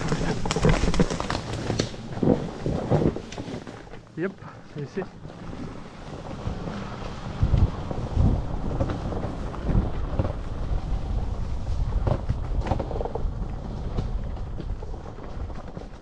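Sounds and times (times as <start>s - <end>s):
wind rumbling on microphone: 0.0s - 16.0s
electric bike knocks and rattles: 5.2s - 16.0s.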